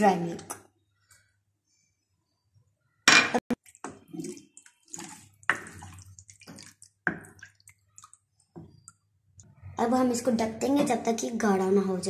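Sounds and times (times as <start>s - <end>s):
liquid sloshing in metal pan: 3.6s - 9.0s.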